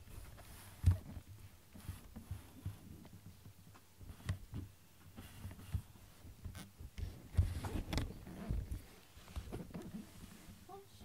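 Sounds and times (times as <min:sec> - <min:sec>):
cat fur rustling against camera: 0:07.0 - 0:10.9.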